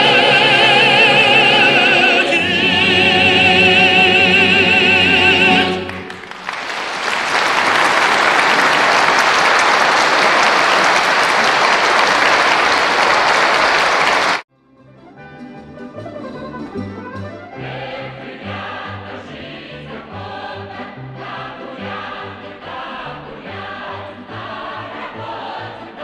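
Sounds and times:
man singing with vibrato: 0.0 - 6.1
faint choral music: 0.0 - 6.3, 17.4 - 26.0
choir and instrumental accompaniment: 0.0 - 6.6, 17.4 - 26.0
audience applauding: 5.7 - 14.4.

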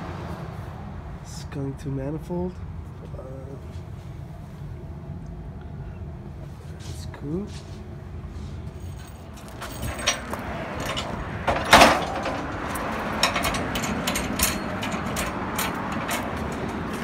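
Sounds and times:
steady background noise: 0.0 - 17.0
chain rattling: 8.7 - 17.0
metal clanks: 8.8 - 17.0
loud metal clatter: 8.9 - 17.0.

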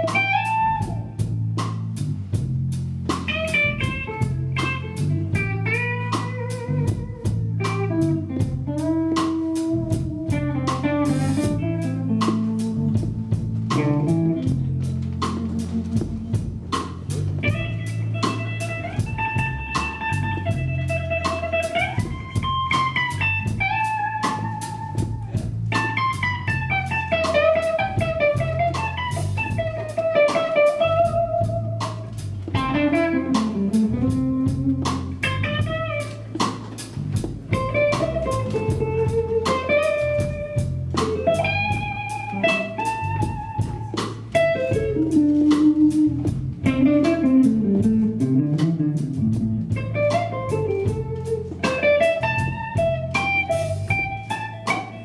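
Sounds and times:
electric guitar solo: 0.0 - 1.2, 3.3 - 16.7, 17.3 - 55.0
bass line: 0.0 - 55.0
drums and cymbal strokes: 0.0 - 55.0.

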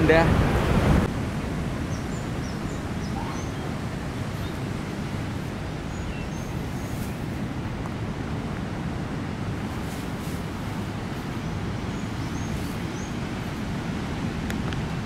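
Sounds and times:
ocean surf: 0.0 - 15.0
wind: 0.0 - 15.0
faint bird chirps: 1.9 - 4.7.

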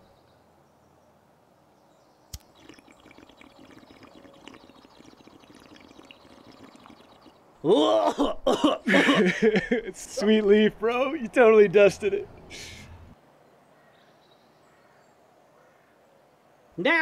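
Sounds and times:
water bong bubbling: 2.4 - 7.4.

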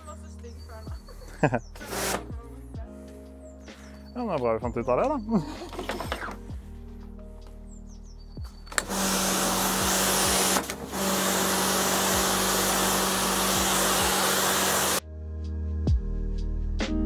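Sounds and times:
pressure washer pump humming: 8.7 - 15.0
water jet hissing on stone: 8.8 - 15.0.

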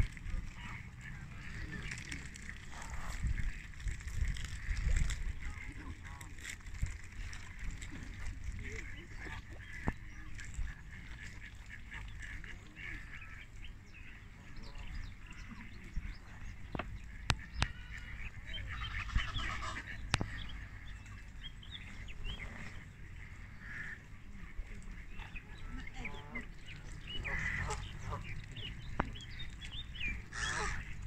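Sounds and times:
ducks quacking: 0.0 - 31.0
geese honking: 14.8 - 31.0.

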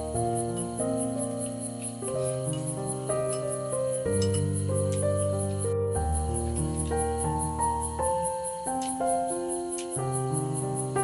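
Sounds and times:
faint insect chirping: 0.0 - 11.0
sustained keyboard chords: 0.0 - 11.0.

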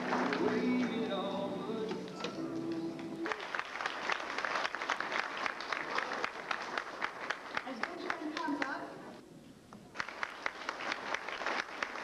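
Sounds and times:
audience applauding: 0.0 - 1.0, 2.7 - 8.7, 9.9 - 12.0.

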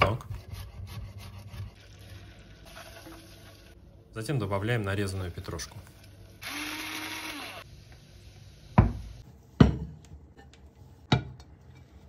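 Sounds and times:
electric pepper mill whirring: 6.4 - 7.7.

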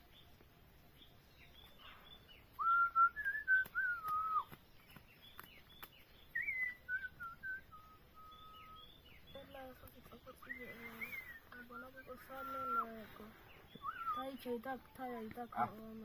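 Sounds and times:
faint high bird chirps: 0.0 - 16.0
person whistling: 2.6 - 4.5.

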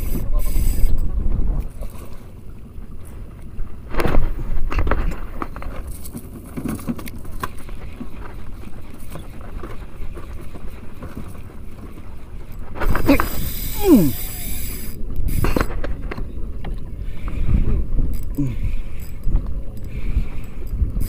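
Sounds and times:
fishing reel clicks and knocks: 0.0 - 1.1, 12.5 - 17.4, 18.0 - 21.0
water lapping against hull: 0.0 - 21.0
wind on microphone: 0.0 - 21.0.

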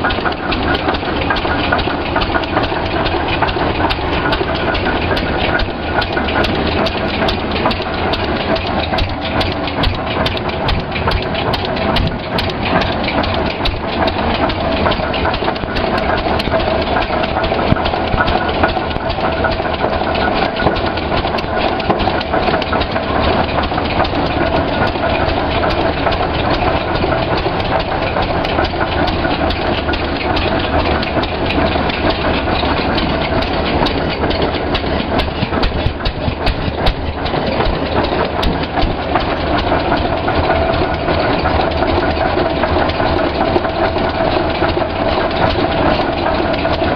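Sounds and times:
tractor engine running: 0.0 - 46.9.

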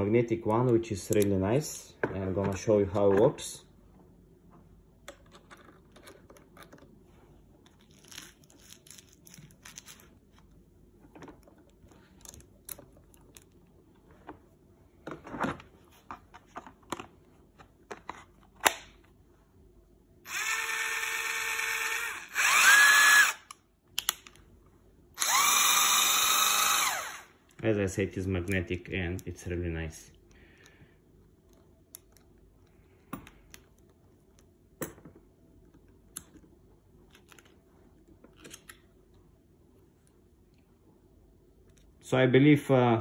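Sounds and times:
impact driver whining: 20.3 - 23.5, 25.2 - 27.3.

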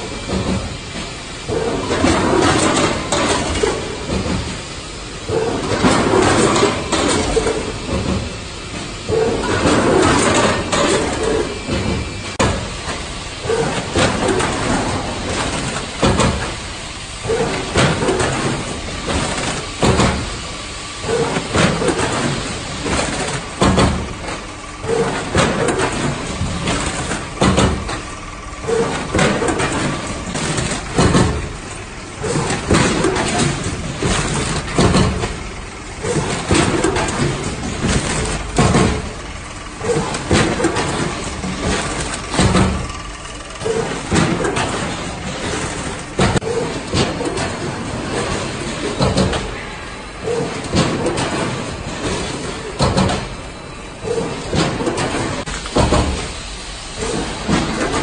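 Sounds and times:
mechanical clack with air rush: 0.0 - 58.0.

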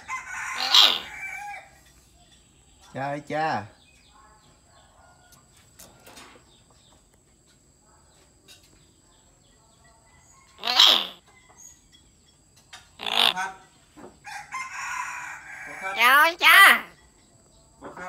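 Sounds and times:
myna bird calls: 0.0 - 2.9, 10.2 - 11.9, 12.7 - 14.0, 15.7 - 17.2.

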